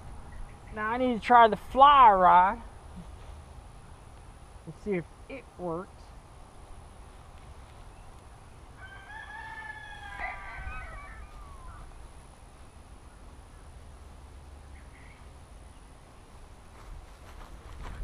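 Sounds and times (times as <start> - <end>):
rooster crowing: 8.8 - 12.0.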